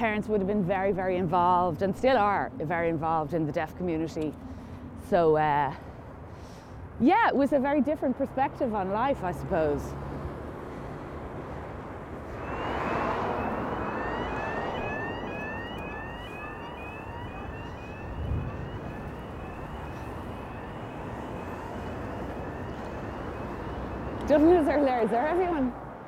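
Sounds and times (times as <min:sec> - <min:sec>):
street traffic noise: 0:00.0 - 0:26.0
vehicle passing: 0:08.6 - 0:26.0
rising electronic chirps: 0:12.3 - 0:24.6.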